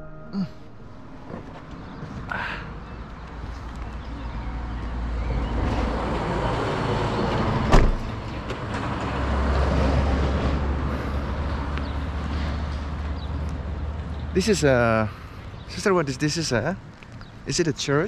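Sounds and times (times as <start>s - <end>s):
car door slamming: 7.7s - 8.1s.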